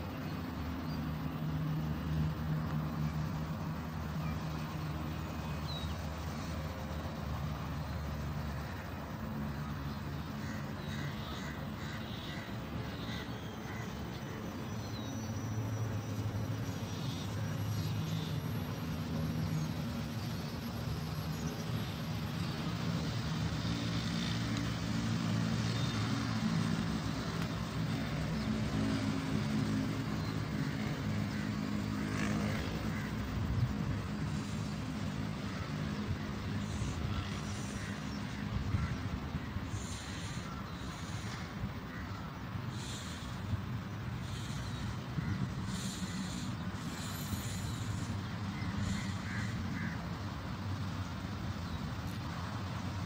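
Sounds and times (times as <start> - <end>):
road traffic hum: 0.0 - 53.0
bird calling: 44.2 - 50.0.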